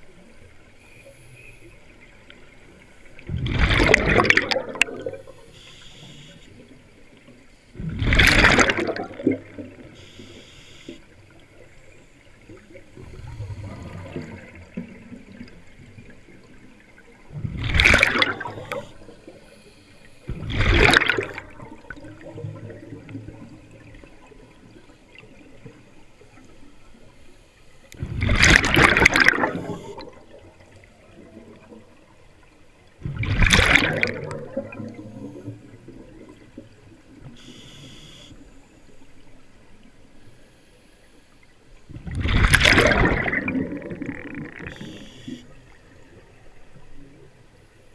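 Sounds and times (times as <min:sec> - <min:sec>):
underwater water noise: 0:00.0 - 0:47.9
bursts of exhaled bubbles: 0:03.3 - 0:05.4, 0:07.8 - 0:09.9, 0:13.0 - 0:16.1, 0:17.3 - 0:19.1, 0:20.3 - 0:24.0, 0:28.0 - 0:31.8, 0:33.0 - 0:36.4, 0:41.9 - 0:45.0
diver breathing through regulator: 0:13.0 - 0:14.5.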